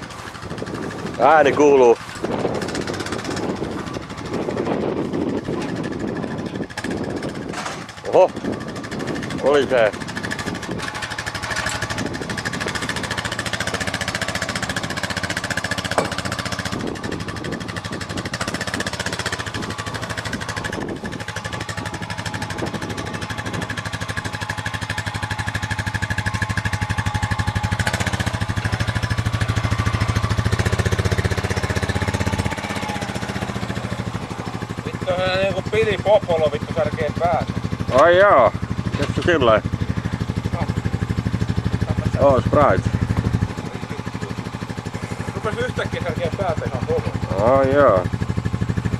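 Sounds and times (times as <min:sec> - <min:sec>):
quad bike engine running: 0:00.0 - 0:48.9.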